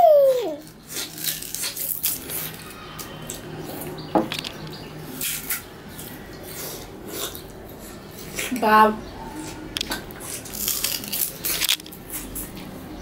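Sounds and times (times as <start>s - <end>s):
sugar cane being chewed: 0.6s - 4.0s, 9.4s - 12.8s.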